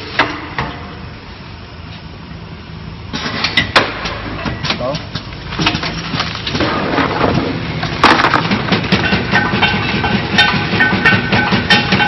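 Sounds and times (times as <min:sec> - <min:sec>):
hard blocks clattering in plastic crate: 0:05.6 - 0:09.4
machine running rhythmically: 0:08.5 - 0:12.0.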